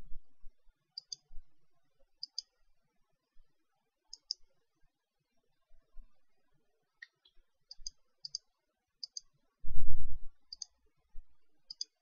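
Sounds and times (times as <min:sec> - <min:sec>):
computer mouse clicking: 0:01.0 - 0:01.3, 0:02.2 - 0:02.5, 0:04.1 - 0:04.4, 0:07.0 - 0:08.4, 0:09.0 - 0:09.3, 0:10.5 - 0:10.7, 0:11.7 - 0:12.0.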